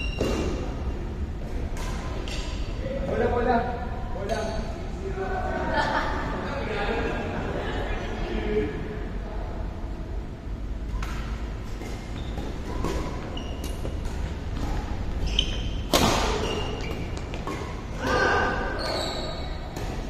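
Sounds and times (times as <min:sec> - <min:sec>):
shoes squeaking on court: 0:10.9 - 0:17.9, 0:18.6 - 0:20.0
racket hitting shuttlecock: 0:11.0 - 0:15.1, 0:15.8 - 0:18.2.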